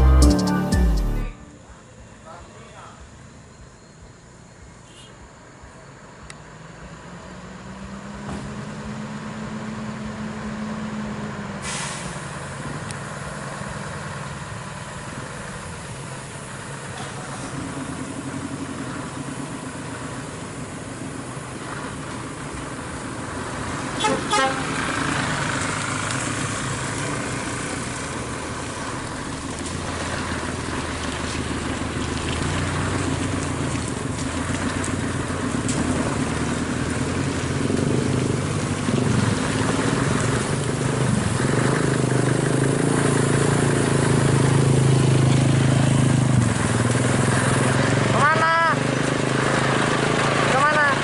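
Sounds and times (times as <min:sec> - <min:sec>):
truck horn toot: 0:00.0 - 0:01.9, 0:24.0 - 0:24.8
truck diesel engine running: 0:00.0 - 0:02.2, 0:09.2 - 0:51.0.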